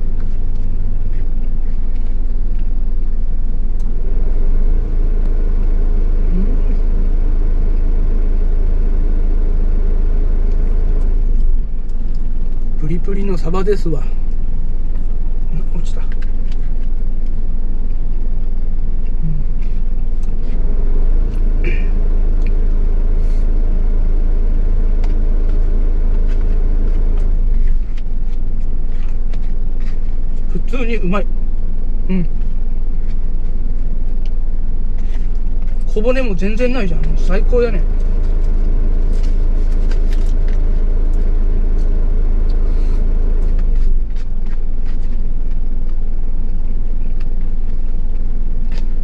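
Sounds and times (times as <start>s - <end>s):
truck engine idling: 0.0s - 49.0s.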